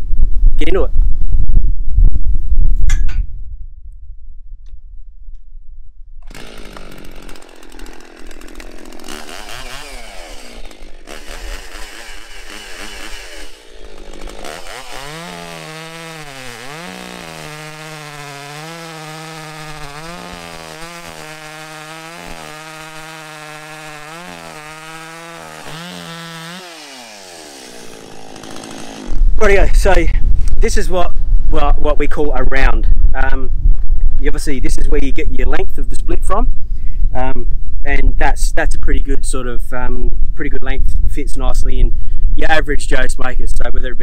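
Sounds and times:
chainsaw cutting log: 6.3s - 29.4s.

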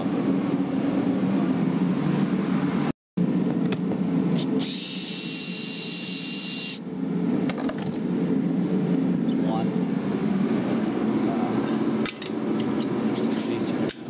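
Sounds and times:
steady low hum: 0.0s - 14.0s
power drill whining: 4.6s - 6.8s.

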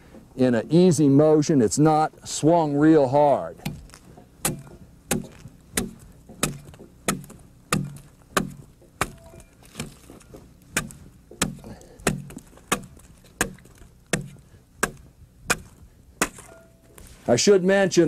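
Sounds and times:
axe chopping wood: 3.6s - 16.6s.

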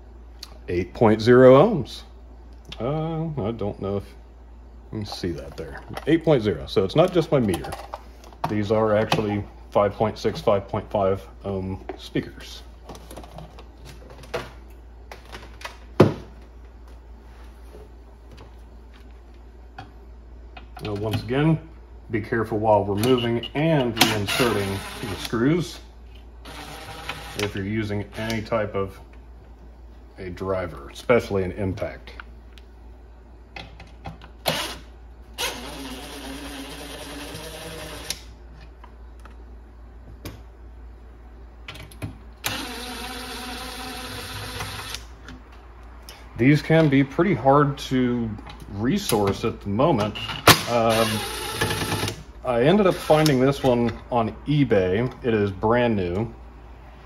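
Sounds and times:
cordless drill running: 35.4s - 38.2s, 42.5s - 45.0s.

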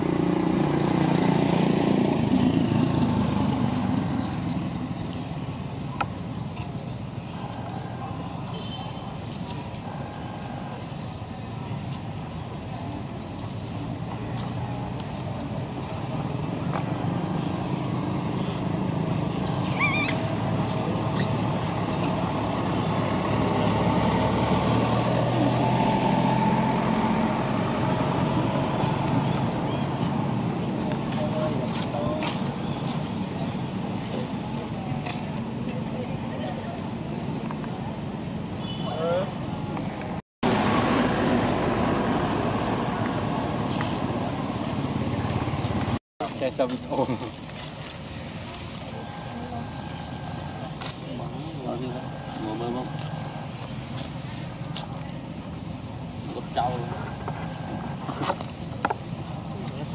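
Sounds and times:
high wavering animal call: 19.6s - 20.3s
vehicle engine running: 40.4s - 59.9s.

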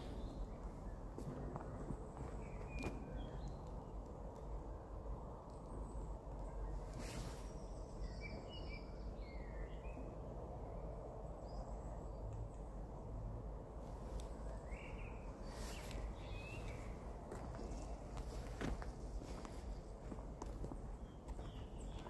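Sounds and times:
birds chirping: 0.0s - 4.0s, 13.9s - 22.0s
low outdoor rumble: 0.0s - 8.2s, 9.0s - 22.0s.

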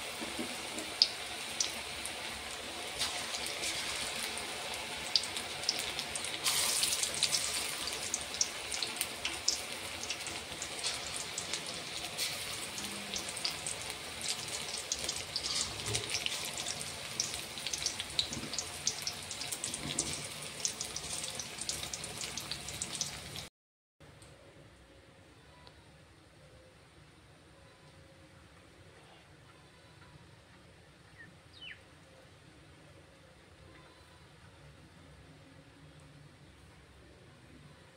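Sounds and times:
fritters deep-frying in oil: 0.0s - 23.5s.

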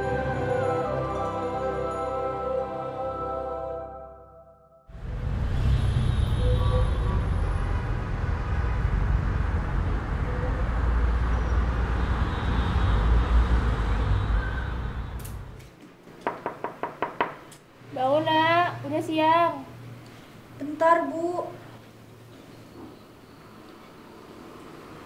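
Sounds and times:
city traffic rumble: 4.9s - 25.0s
knocking on a door: 16.2s - 17.5s.

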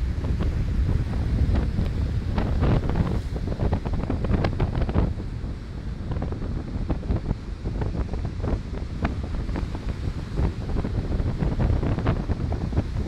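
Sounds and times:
wind buffeting microphone: 0.0s - 13.0s
surf breaking in shallows: 0.1s - 5.1s.

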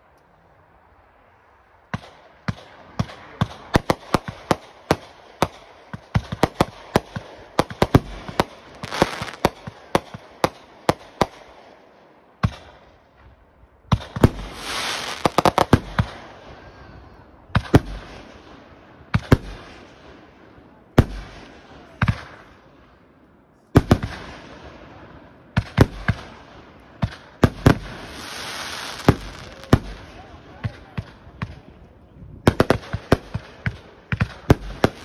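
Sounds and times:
fireworks crackling: 1.9s - 11.8s, 13.9s - 16.6s, 27.0s - 31.7s, 32.4s - 35.0s.

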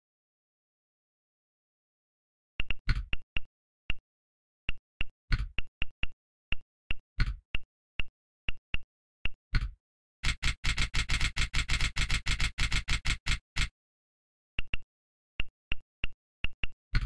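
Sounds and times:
phone keyboard key clicks: 10.2s - 13.7s.

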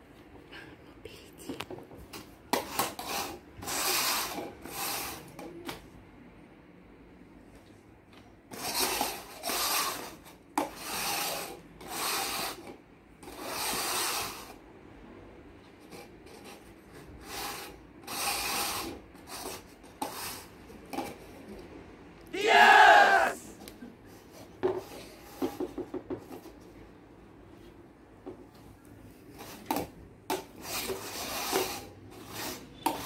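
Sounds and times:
plastic cups scraping on table: 8.5s - 14.4s, 29.4s - 33.0s.

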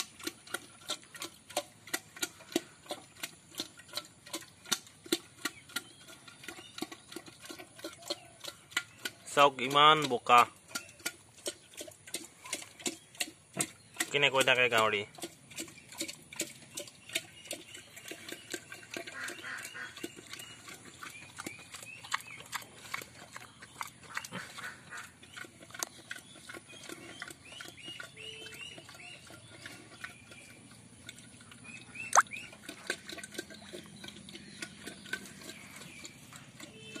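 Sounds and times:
pig chomping and slurping: 0.0s - 37.0s
small bird chirping: 15.5s - 37.0s.

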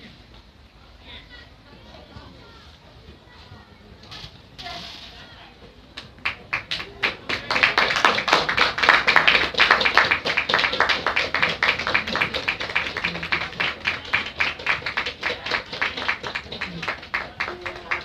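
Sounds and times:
spectators clapping: 5.9s - 18.0s.

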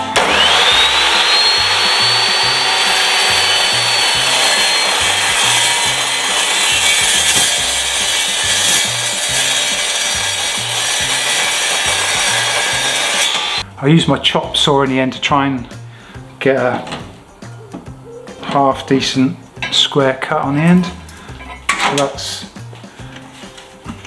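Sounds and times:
chop saw cutting steel: 0.0s - 13.6s.

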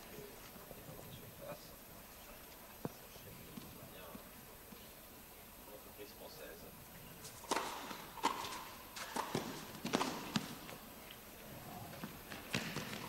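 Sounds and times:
tennis ball hits and bounces: 7.2s - 10.8s, 12.0s - 13.0s.

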